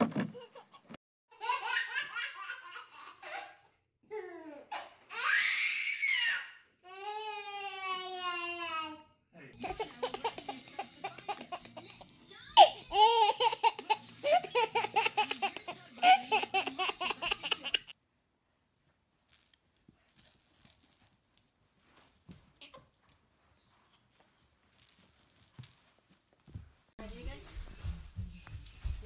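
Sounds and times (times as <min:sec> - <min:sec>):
baby laughing: 0:00.3 - 0:03.7, 0:09.6 - 0:17.9
faint high jingling rattles: 0:19.2 - 0:27.9.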